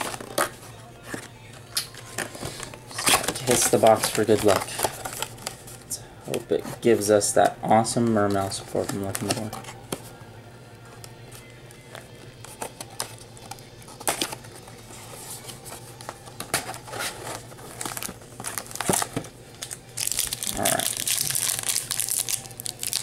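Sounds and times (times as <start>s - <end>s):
foil wrappers crinkling: 0.0s - 5.9s, 15.1s - 23.0s.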